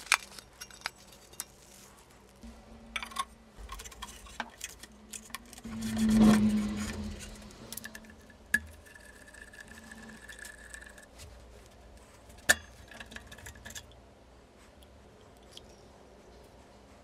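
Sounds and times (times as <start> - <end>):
steel parts scraping: 2.7 - 11.2.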